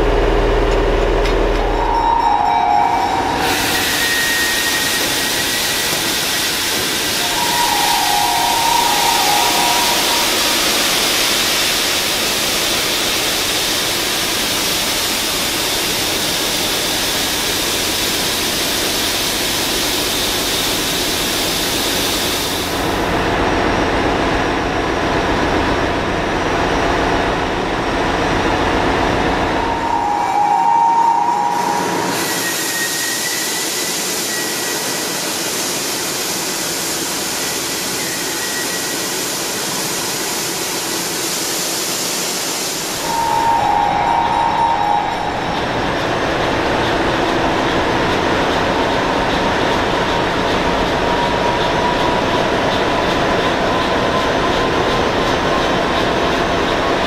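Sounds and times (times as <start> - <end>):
ship engine room noise: 0.0 - 57.0
high whining tone: 1.0 - 12.0, 29.2 - 34.7, 43.0 - 47.6.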